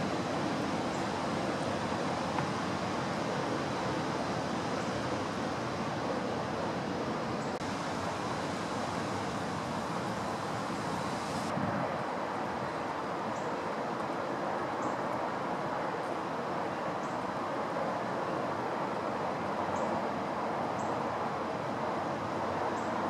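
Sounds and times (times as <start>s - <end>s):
strong wind through trees: 0.0s - 23.0s.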